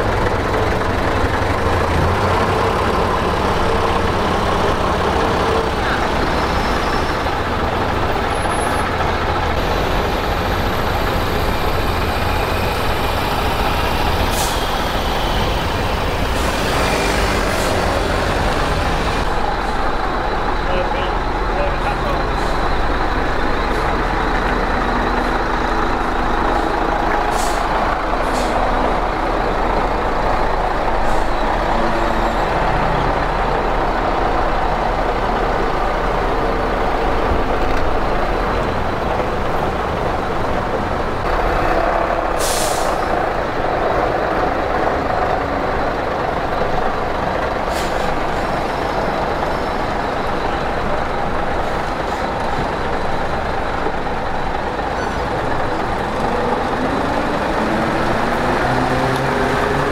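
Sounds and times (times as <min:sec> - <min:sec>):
diesel bus engines running: 0:00.0 - 0:59.9
air brakes hissing: 0:14.0 - 0:17.9, 0:26.5 - 0:28.7, 0:42.2 - 0:43.2, 0:47.6 - 0:48.9.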